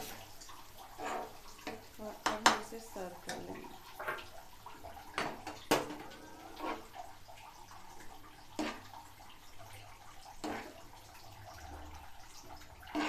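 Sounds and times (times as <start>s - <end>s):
steel ladle scraping a pan: 0.8s - 1.8s, 5.2s - 7.1s, 8.6s - 9.0s, 10.3s - 11.0s, 12.7s - 13.0s.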